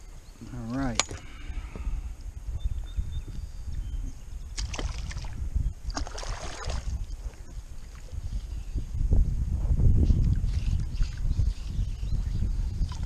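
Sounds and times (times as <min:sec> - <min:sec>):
fish splashing water: 0:04.6 - 0:07.0.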